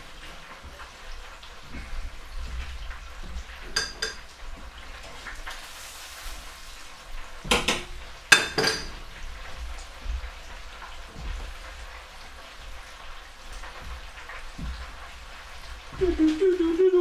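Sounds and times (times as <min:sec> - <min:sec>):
food sizzling in deep fryer oil: 0:00.0 - 0:17.0
metal clanks at fryer: 0:02.6 - 0:05.3, 0:07.4 - 0:12.4.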